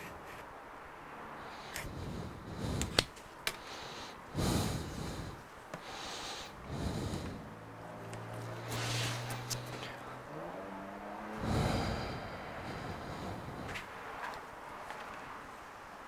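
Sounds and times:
low steady hum: 11.3s - 13.8s.

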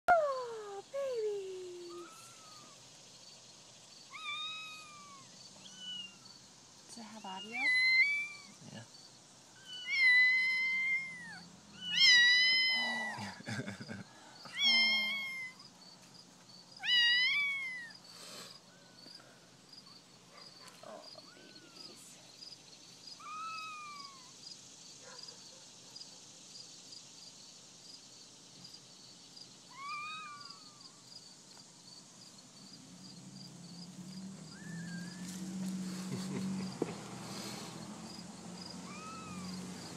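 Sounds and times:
kittens mewing: 1.7s - 2.8s, 4.1s - 6.3s, 7.3s - 8.6s, 9.6s - 13.4s, 14.5s - 15.6s, 23.2s - 24.4s, 38.7s - 39.7s.

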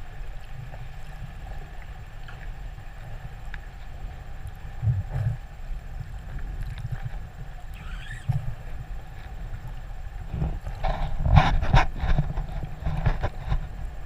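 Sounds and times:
underwater low rumble: 0.0s - 14.0s
killer whale call: 7.7s - 8.8s.

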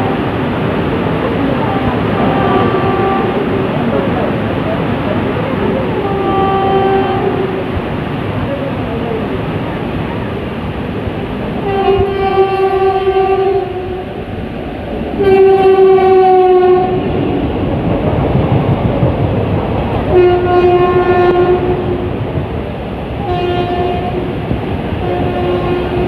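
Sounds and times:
train horn blasts: 0.0s - 0.4s, 1.7s - 3.6s, 6.0s - 7.8s, 11.6s - 14.2s, 15.2s - 17.1s, 20.1s - 22.1s, 23.2s - 24.4s, 25.0s - 26.0s
train passing rumble: 0.0s - 26.0s.

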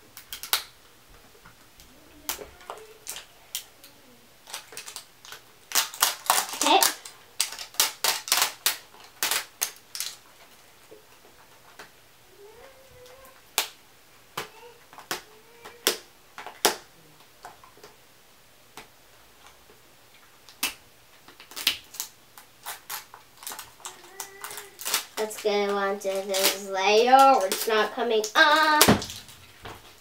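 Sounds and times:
plastic wrapping crackling: 0.2s - 0.9s, 1.6s - 13.8s, 19.4s - 30.0s.

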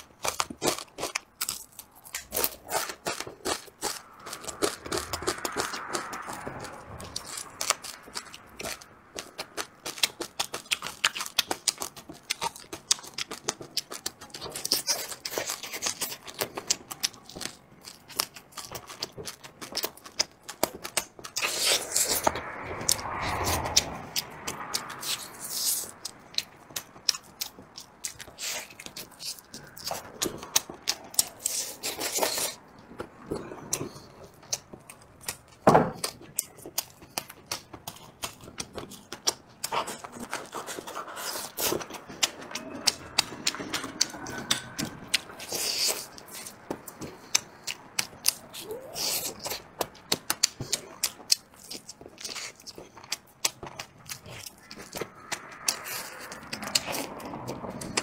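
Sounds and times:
wet chewing and mouth smacks: 0.0s - 58.0s
meat torn from bone: 49.0s - 58.0s.

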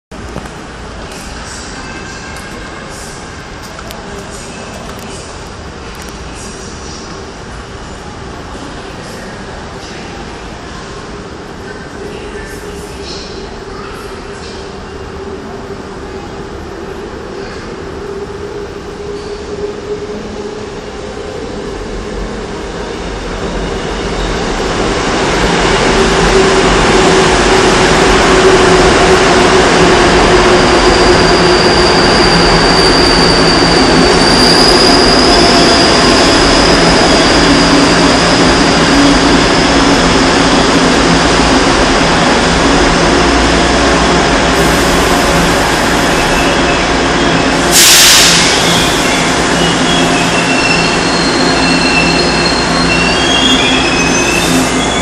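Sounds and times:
high steady squeal: 28.9s - 41.2s, 44.6s - 55.0s.

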